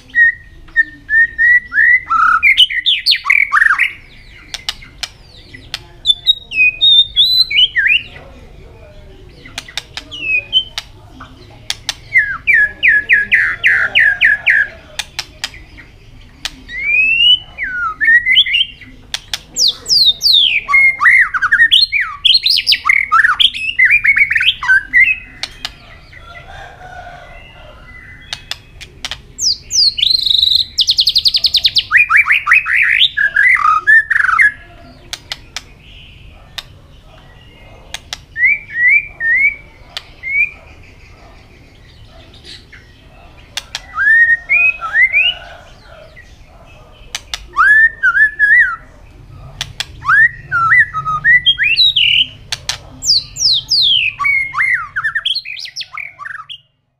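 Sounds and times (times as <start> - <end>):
bird singing varied phrases: 0.0 - 56.9
sharp clicks: 4.5 - 5.9, 9.5 - 11.0, 11.6 - 12.2, 19.1 - 19.6, 25.4 - 25.8, 28.3 - 29.3, 35.1 - 35.8, 37.9 - 38.3, 43.4 - 43.9, 47.1 - 47.6, 49.6 - 50.0, 52.4 - 53.2.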